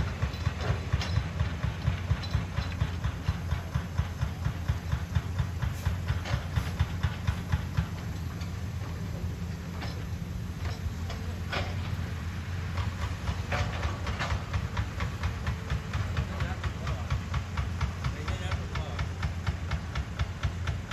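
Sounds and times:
excavator diesel engines running: 0.0s - 20.9s.

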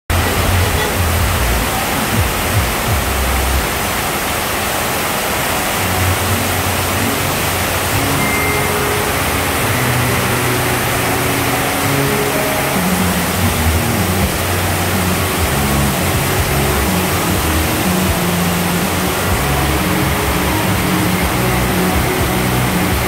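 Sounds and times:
heavy rain on pavement: 0.1s - 23.0s
motorcycle engine running: 6.4s - 23.0s.

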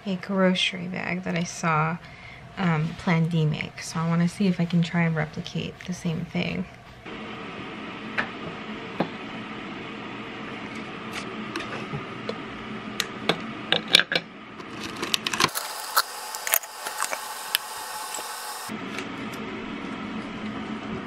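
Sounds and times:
steady hum: 0.0s - 21.0s
steady hiss: 15.5s - 18.7s.

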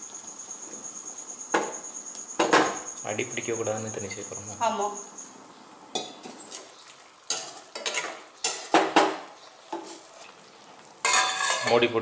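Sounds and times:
low sizzle: 0.0s - 12.0s
metal spoon scraping a pan: 7.3s - 8.9s, 9.7s - 10.4s, 11.0s - 11.9s.

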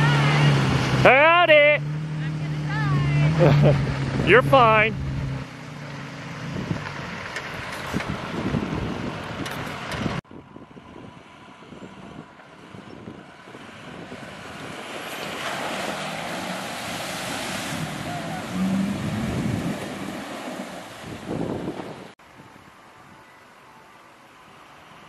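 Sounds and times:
truck engine revving: 0.0s - 10.2s, 11.9s - 22.2s
wind noise on microphone: 6.4s - 15.3s, 17.5s - 23.2s
water and mud splashing: 13.2s - 22.2s.

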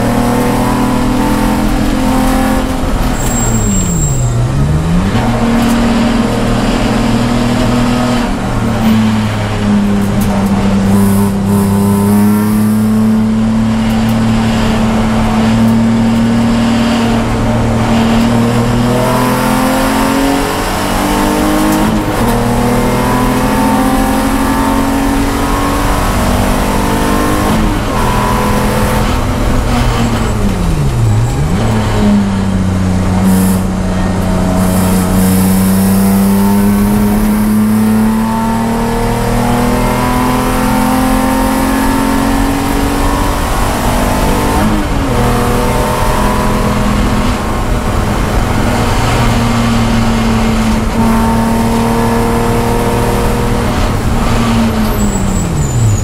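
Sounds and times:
race car engine revving: 0.0s - 56.0s.

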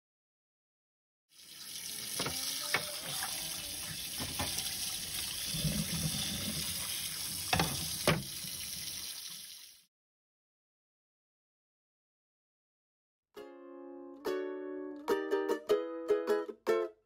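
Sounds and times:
tap water running onto metal: 1.4s - 9.8s.

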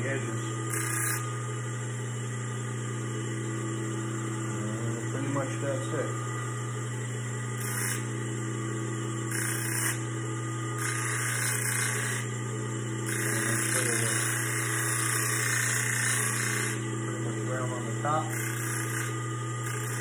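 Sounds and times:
bench grinder motor humming: 0.0s - 20.0s
metal grinding on wheel: 9.3s - 10.0s, 10.8s - 12.3s, 13.0s - 16.8s, 18.3s - 20.0s.

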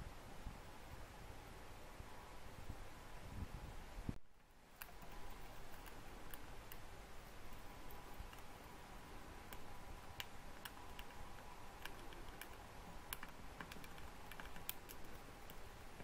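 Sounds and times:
faint steady hum: 0.0s - 16.0s
hamster gnawing nut shell: 4.7s - 16.0s.

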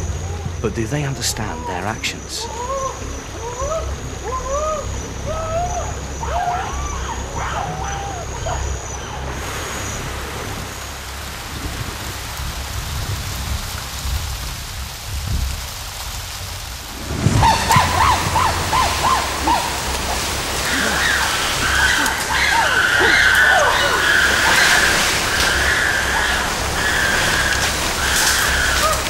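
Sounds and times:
heavy rain on foliage: 0.0s - 29.0s
chimpanzees calling loudly: 2.3s - 9.3s, 17.0s - 29.0s
low thunder rumble: 11.2s - 29.0s.

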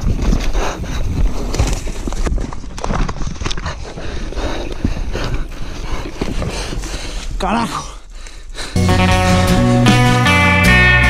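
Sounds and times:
bike tyres over dirt and rock: 0.0s - 7.5s.

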